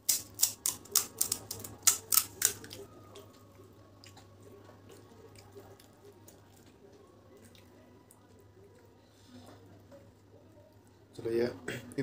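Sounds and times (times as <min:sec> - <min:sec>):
crisp shells crunching: 0:00.0 - 0:02.8.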